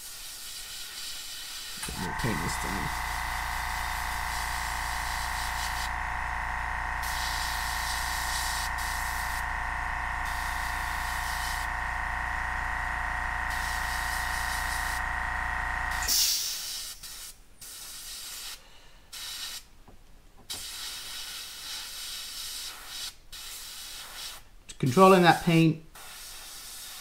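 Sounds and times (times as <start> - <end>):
airbrush hissing in bursts: 0.0 - 6.0, 7.0 - 9.5, 10.2 - 11.7, 13.5 - 15.0, 16.0 - 19.7, 20.5 - 24.5, 25.9 - 27.0
motor humming: 1.8 - 16.1.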